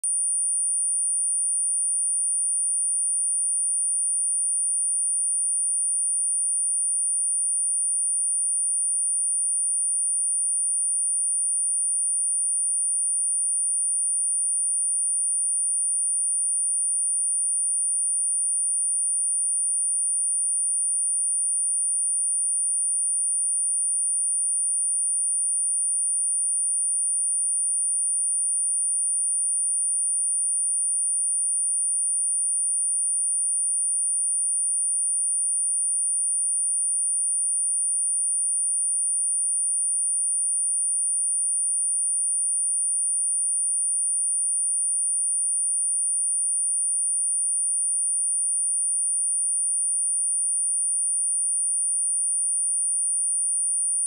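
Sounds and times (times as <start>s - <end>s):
high-pitched sine test tone: 0.0s - 4.0s.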